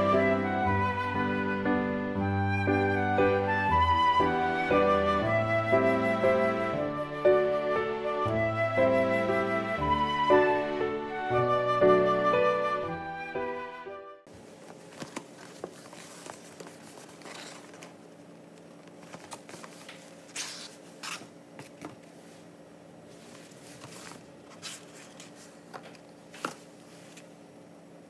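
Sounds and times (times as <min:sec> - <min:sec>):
cardboard boxes being handled: 0:14.6 - 0:18.0, 0:23.2 - 0:25.8
paper rustling: 0:14.6 - 0:18.0, 0:18.8 - 0:22.2, 0:23.1 - 0:27.3.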